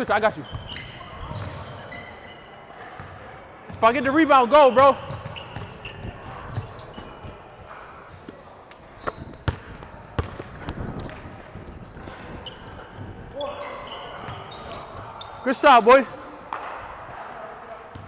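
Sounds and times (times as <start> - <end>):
basketball bouncing on court: 2.9 - 3.9, 4.8 - 7.3, 9.0 - 13.5
short high squeaks: 5.4 - 9.5.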